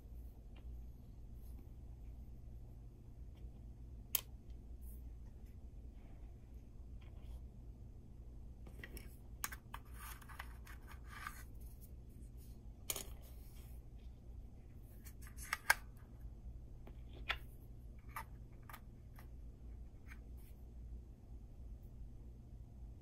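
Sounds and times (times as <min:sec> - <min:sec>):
low steady hum: 0:00.0 - 0:23.0
small parts clicking and scraping: 0:08.6 - 0:11.5, 0:12.8 - 0:13.7.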